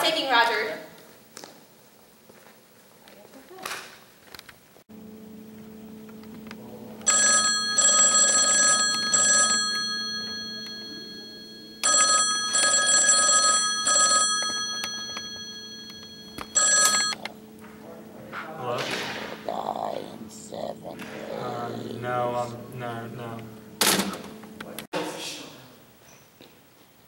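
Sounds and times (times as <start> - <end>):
steady low hum: 4.2 - 26.0
payphone bell ringing: 7.0 - 17.3.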